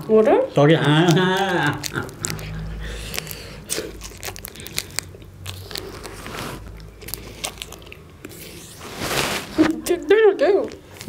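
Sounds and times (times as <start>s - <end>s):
plastic wrapper crackling: 0.0s - 11.0s
chewing chocolate bar crunches: 0.5s - 8.8s.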